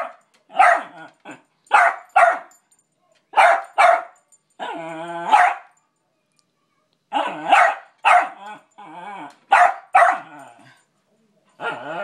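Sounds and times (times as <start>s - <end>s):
dog barking: 0.0s - 1.0s, 1.7s - 2.5s, 3.4s - 4.2s, 5.3s - 5.7s, 7.1s - 8.4s, 9.5s - 10.3s.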